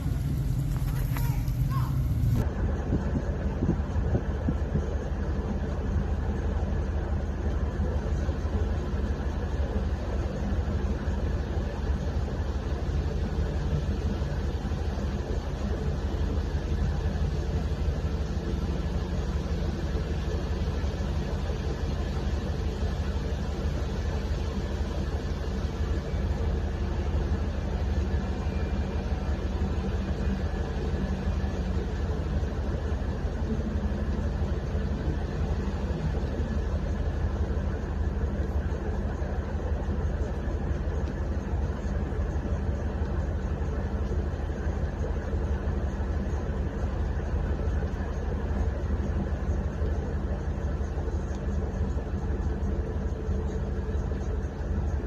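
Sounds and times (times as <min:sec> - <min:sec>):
vehicle engine idling: 0:00.0 - 0:55.0.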